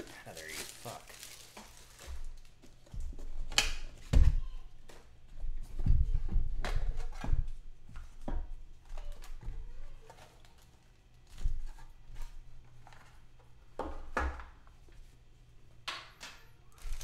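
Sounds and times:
card packs crinkling: 0.0 - 2.9, 16.7 - 17.0.

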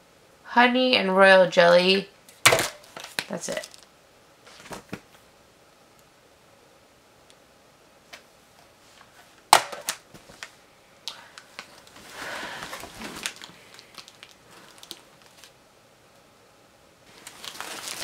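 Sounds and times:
item knocking down on pile: 2.4 - 3.1
packaging rustling: 2.6 - 3.9, 11.3 - 15.6, 17.1 - 18.0.

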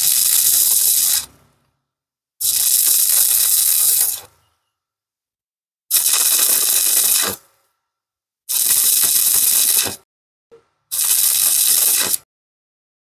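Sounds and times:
welding arc crackling and hissing: 0.0 - 1.4, 2.4 - 4.3, 5.9 - 7.4, 8.5 - 10.0, 10.9 - 12.2.

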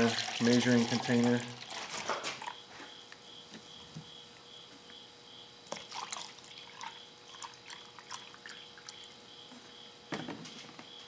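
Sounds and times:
liquid pouring and splashing: 0.0 - 2.6, 5.7 - 9.0.

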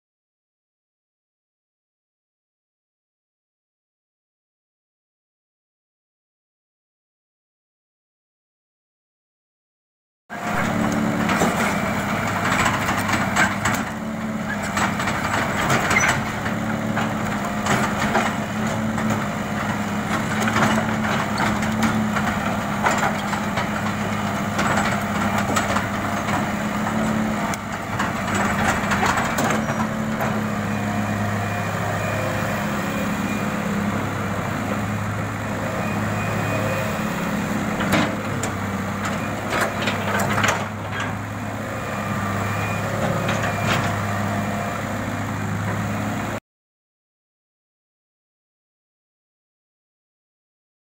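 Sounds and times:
diesel engine running: 10.3 - 46.4
excavator bucket clattering: 10.7 - 30.5, 37.8 - 41.2.

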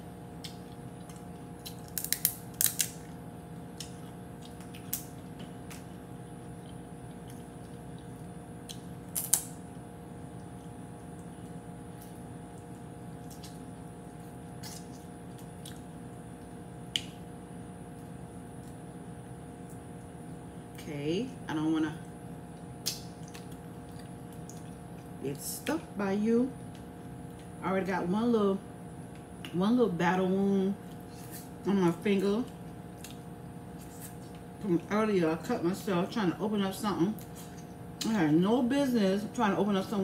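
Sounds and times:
steady low hum: 0.0 - 40.0
crawfish shells cracking: 0.4 - 9.6.

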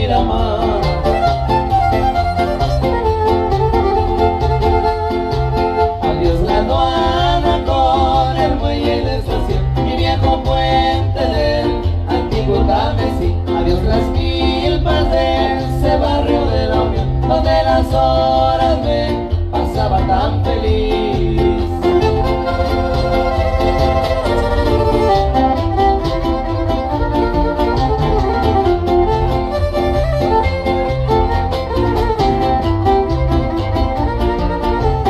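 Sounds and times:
violin melody: 0.0 - 7.9, 21.8 - 35.0
strummed guitars: 0.0 - 35.0.

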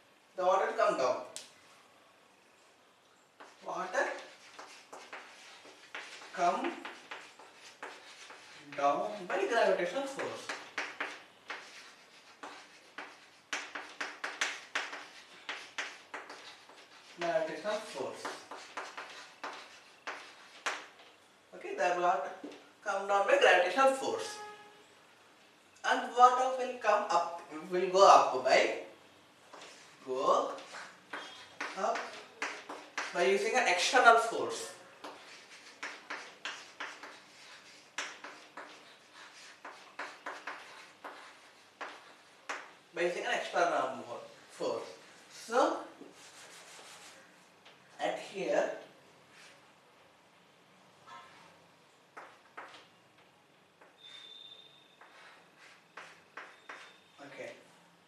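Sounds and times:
pen scratching on paper: 3.4 - 8.7, 10.1 - 20.9, 35.0 - 42.7, 55.0 - 57.0.

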